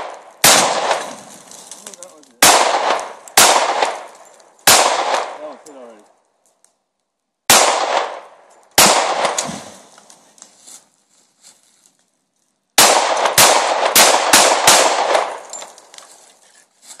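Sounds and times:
pistol shots echoing: 0.0 - 1.2, 2.4 - 5.6, 7.5 - 9.7, 12.8 - 15.7.

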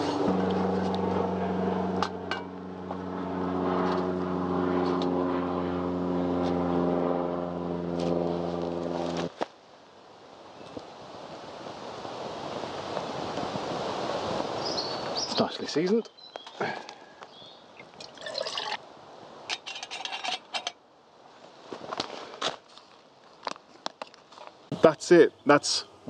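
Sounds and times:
motor droning: 0.0 - 9.3.

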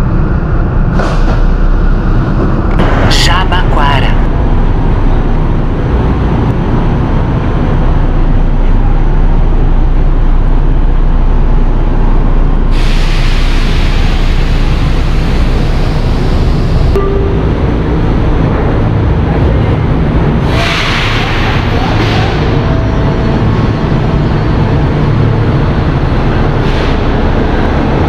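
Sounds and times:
train running: 0.0 - 28.0
hiss: 12.7 - 16.3, 20.5 - 21.7.

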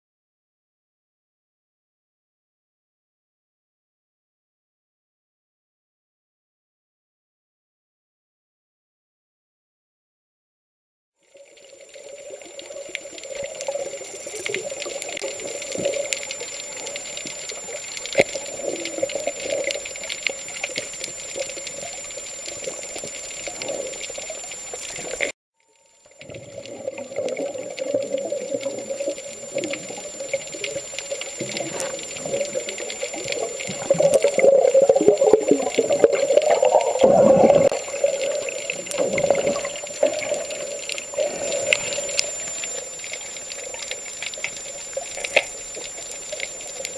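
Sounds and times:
underwater rushing water: 11.2 - 25.3, 26.1 - 46.9
small clicks: 11.5 - 25.9, 37.6 - 46.9
thin high whine: 11.7 - 46.9.

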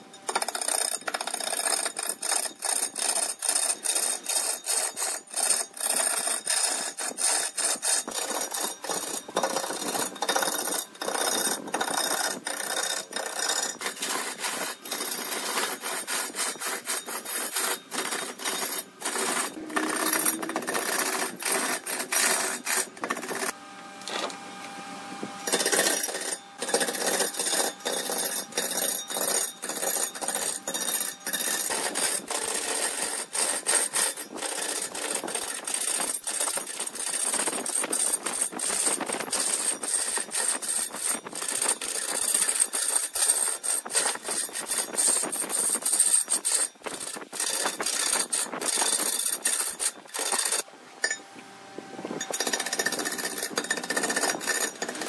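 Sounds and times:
lathe tool cutting wood: 1.2 - 37.2, 52.2 - 55.0.

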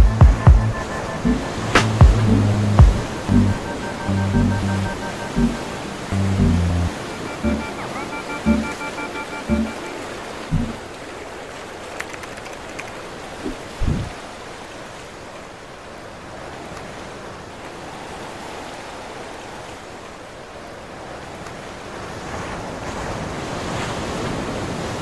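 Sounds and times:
low thumps: 0.0 - 6.9, 10.5 - 10.8
rushing water: 0.2 - 25.0
wind buffeting microphone: 13.7 - 14.2.

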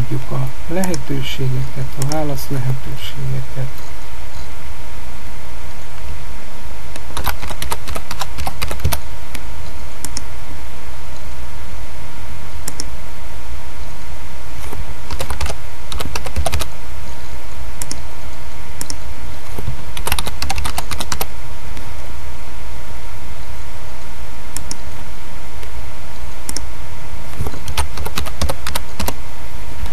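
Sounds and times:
faint hum: 0.0 - 29.9
steady hiss: 0.0 - 29.9
typing on computer keyboard: 7.0 - 9.0, 14.6 - 16.7, 20.0 - 21.3, 27.4 - 29.2.

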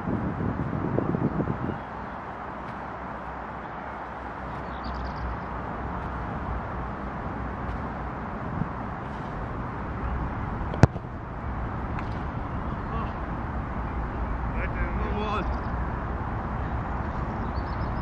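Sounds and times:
low outdoor background hum: 0.0 - 18.0
football being kicked: 10.7 - 11.1.

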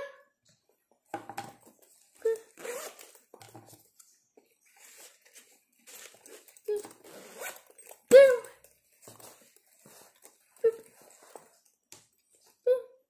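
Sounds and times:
zipper scraping: 2.2 - 3.2, 5.8 - 8.0
backpack fabric rustling: 2.4 - 3.3, 4.6 - 8.0.

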